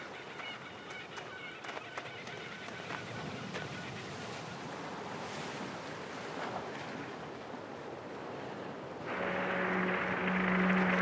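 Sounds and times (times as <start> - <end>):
wind: 0.0 - 11.0
waves breaking on beach: 2.4 - 11.0.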